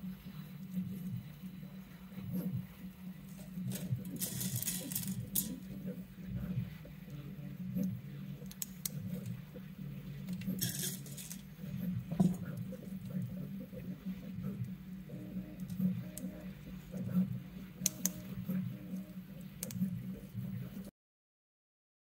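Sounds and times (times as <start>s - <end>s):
steady low hum: 0.0s - 20.9s
plastic parts clicking and rattling: 3.6s - 5.7s, 10.2s - 11.5s.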